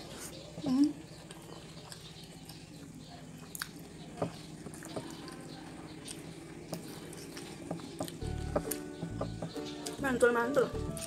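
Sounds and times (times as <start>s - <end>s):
wet chewing and lip smacks: 1.2s - 3.9s.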